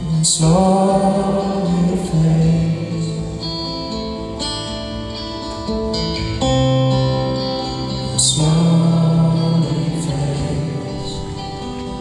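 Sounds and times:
person singing: 0.0s - 4.2s, 7.2s - 12.0s
acoustic guitar chords: 0.0s - 12.0s.

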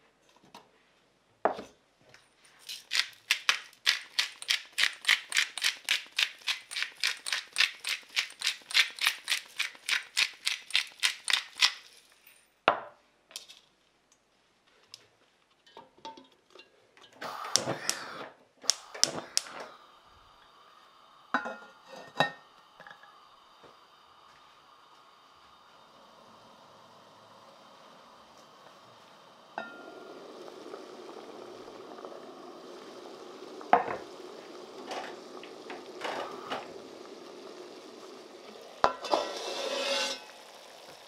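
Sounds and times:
salt mill clicking: 2.6s - 12.1s, 17.3s - 19.7s
metal lid clattering on pot: 38.8s - 40.3s.

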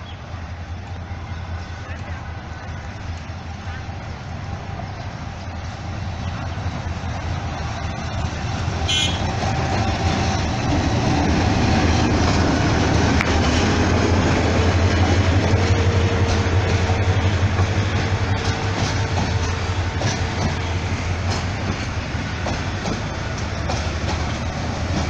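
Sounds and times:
locomotive engine drone: 0.0s - 25.0s
train coaches rolling on rails: 0.0s - 25.0s.

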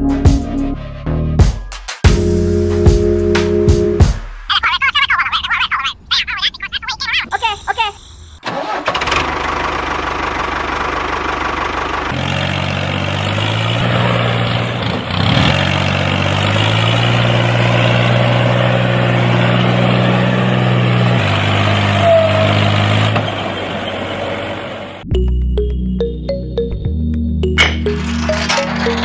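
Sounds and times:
tractor engine running: 8.1s - 25.0s, 27.4s - 29.0s.

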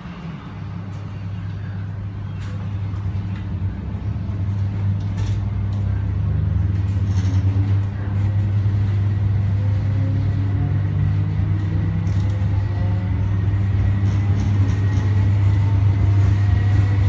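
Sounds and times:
train rumble: 0.0s - 17.0s.

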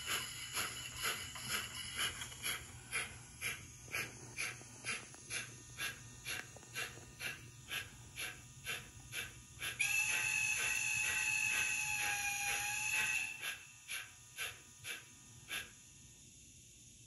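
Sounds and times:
multi-tone steam whistle: 0.0s - 2.1s, 9.6s - 15.0s
steam exhaust chuffs: 0.0s - 16.6s.

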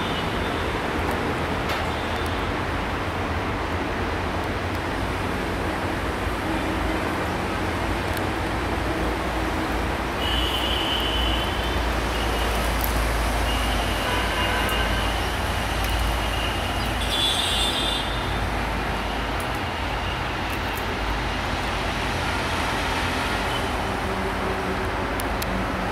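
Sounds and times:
road traffic rumble: 0.0s - 25.9s.

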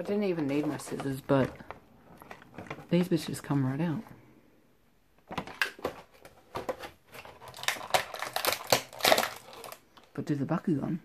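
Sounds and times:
plastic packaging crinkling: 0.0s - 3.4s, 5.3s - 10.1s.

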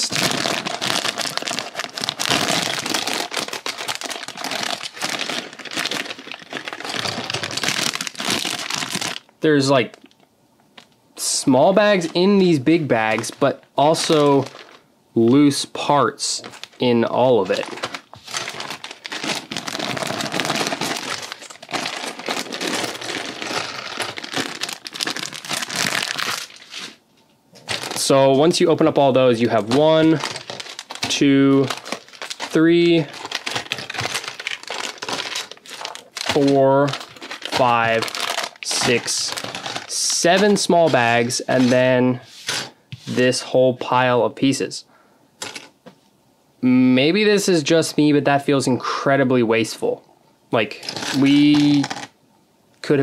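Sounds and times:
plastic bag crinkling: 0.0s - 10.2s, 11.8s - 42.0s, 50.8s - 52.2s.

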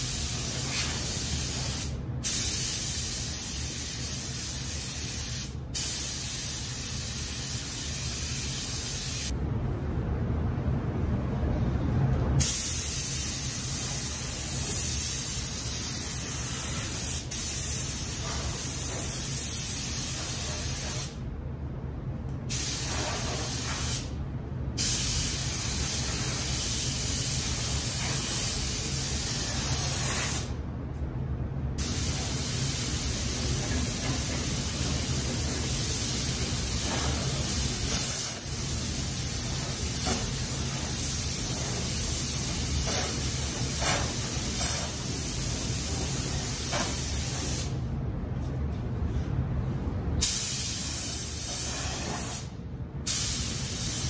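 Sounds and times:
paint spray gun hissing: 0.0s - 9.3s, 50.2s - 52.5s
steady low hum: 0.0s - 54.0s.

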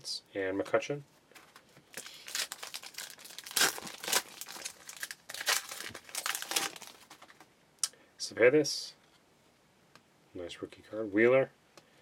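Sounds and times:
foil wrapper tearing and crinkling: 1.9s - 7.3s.

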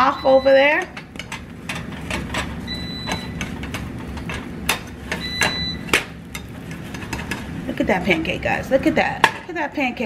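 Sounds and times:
air fryer beeps: 0.0s - 1.0s, 2.6s - 3.6s, 5.1s - 6.1s
spatula scraping frying pan: 0.8s - 8.4s.

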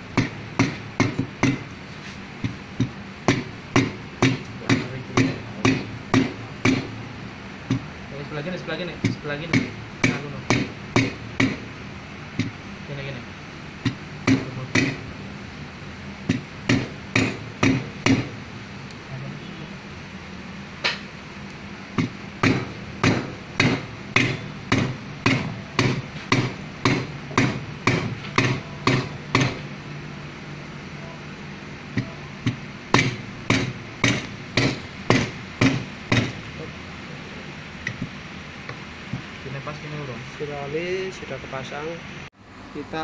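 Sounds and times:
hammer striking steel tube: 0.1s - 1.7s, 2.4s - 7.0s, 9.0s - 11.7s, 13.8s - 15.1s, 16.2s - 18.4s, 22.0s - 29.7s, 32.0s - 36.5s.

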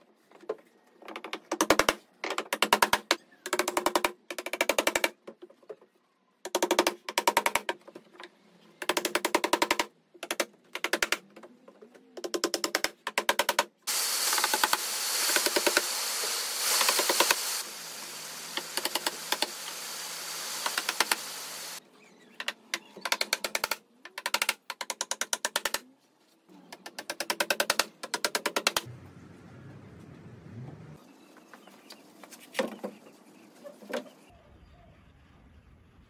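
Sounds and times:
hammer driving nails into wood: 1.1s - 5.2s, 8.8s - 11.3s, 12.2s - 15.9s, 18.6s - 19.8s, 26.8s - 28.8s
steady hiss: 13.9s - 21.8s.

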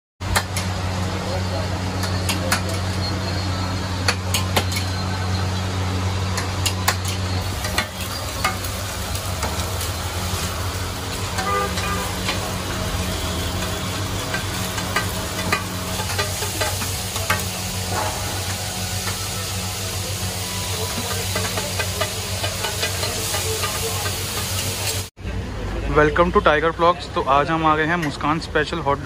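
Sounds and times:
burgers sizzling on griddle: 0.2s - 25.1s
spatula scraping hot plate: 6.4s - 25.1s.

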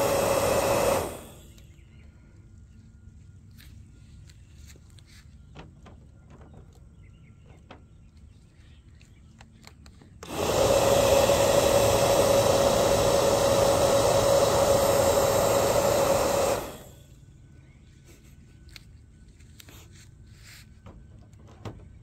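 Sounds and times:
bubble gun fan motor whirring: 0.0s - 2.0s, 9.6s - 21.8s.

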